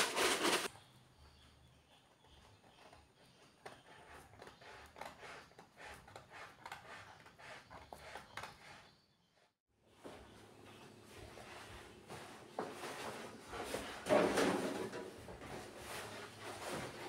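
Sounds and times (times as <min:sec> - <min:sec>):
utility knife cutting vinyl sheet: 0:00.0 - 0:00.7.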